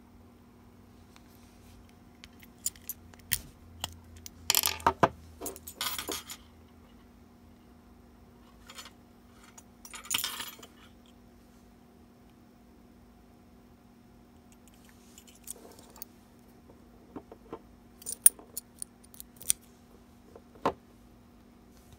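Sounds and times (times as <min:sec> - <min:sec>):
keys jangling: 0:02.3 - 0:03.4, 0:18.0 - 0:19.5.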